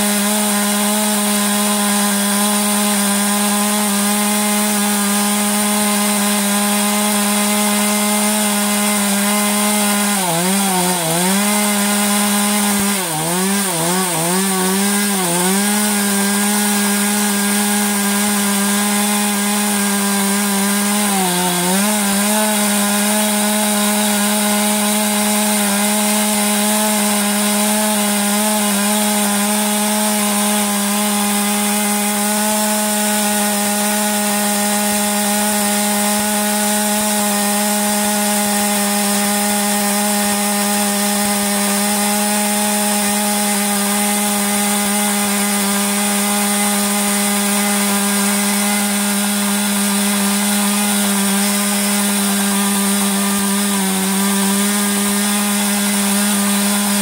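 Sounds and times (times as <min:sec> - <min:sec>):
chain cutting wood: 0:00.0 - 0:57.0
chainsaw engine at high revs: 0:00.0 - 0:57.0.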